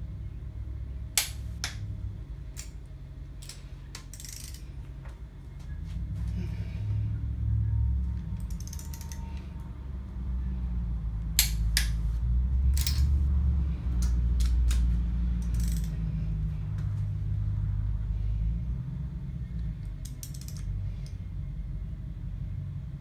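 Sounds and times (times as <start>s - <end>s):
torque wrench clicking: 3.4s - 4.7s, 8.4s - 9.2s, 15.4s - 16.0s, 19.8s - 21.2s
low rumble: 4.6s - 20.0s.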